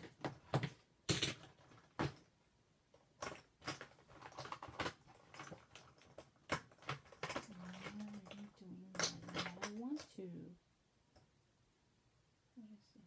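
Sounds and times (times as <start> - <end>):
makeup products clicking and tapping: 3.2 - 10.1.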